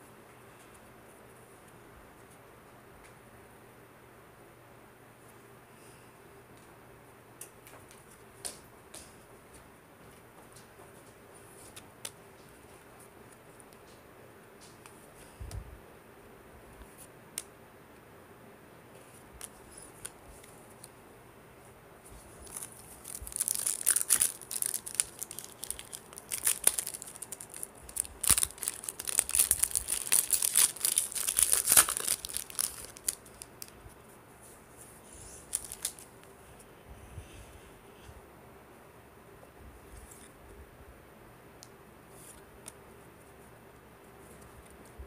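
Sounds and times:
wrapper crinkling: 22.2 - 33.9, 35.2 - 36.2.

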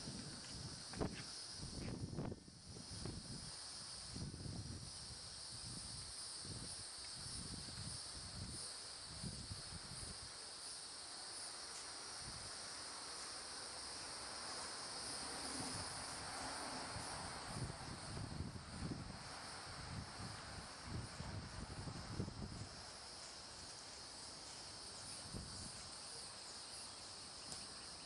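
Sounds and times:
wind rumble on microphone: 0.0 - 10.3, 15.1 - 22.9, 24.9 - 26.0
insects chirring: 0.0 - 28.0.

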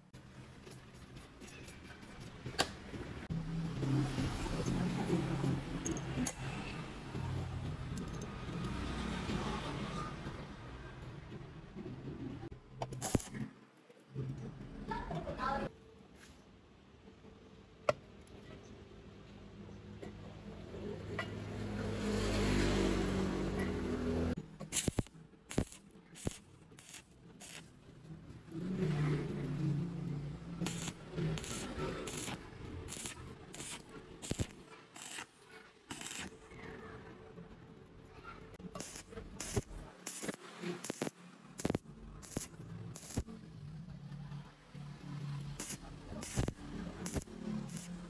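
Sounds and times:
welding arc crackling pops: 13.0 - 13.4, 24.6 - 27.7, 30.6 - 35.3, 35.9 - 36.3, 38.8 - 43.3, 45.6 - 48.0.

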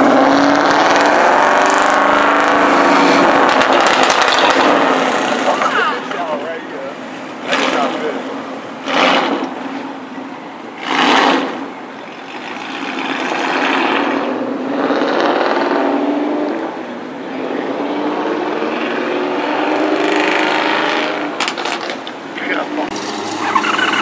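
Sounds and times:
car engine accelerating: 0.0 - 6.6, 10.8 - 24.0
engine revving bursts: 8.8 - 9.5, 10.8 - 11.6.

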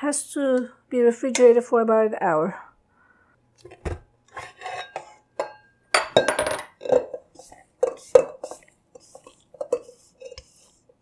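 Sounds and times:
spatula scraping metal bowl: 4.3 - 5.3, 6.8 - 11.0.

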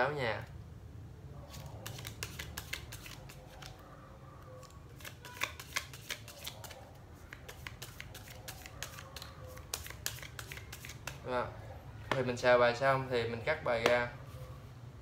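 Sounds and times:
playing cards shuffling: 1.5 - 3.8, 4.9 - 11.2.

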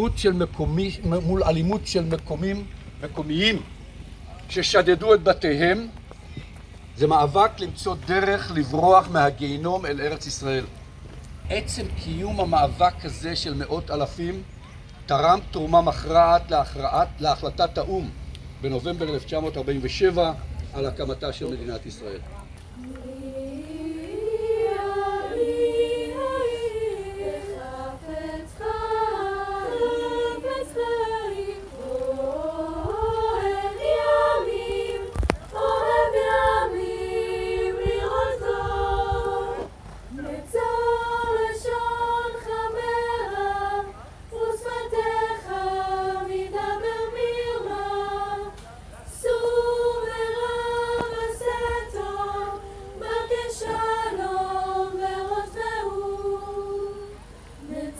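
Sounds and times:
choir singing a cappella: 22.8 - 57.9.

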